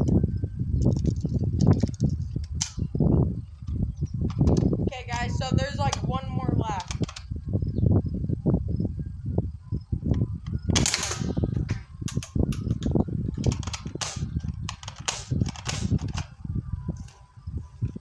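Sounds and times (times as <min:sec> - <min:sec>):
airsoft rifle shots: 0:10.7 - 0:11.4, 0:13.5 - 0:16.3.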